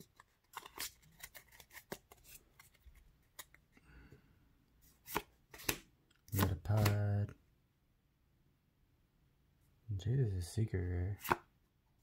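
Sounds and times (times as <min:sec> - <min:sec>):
trading cards snapping and rustling: 0:00.0 - 0:03.6, 0:05.0 - 0:07.1, 0:11.2 - 0:11.5
sharp card clicks: 0:06.4 - 0:07.1.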